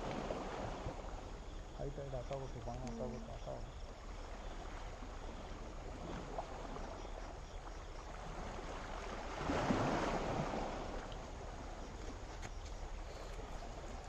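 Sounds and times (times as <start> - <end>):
small wave washing ashore: 0.0 - 2.0, 4.0 - 14.0
low hiss of sea: 13.0 - 14.0.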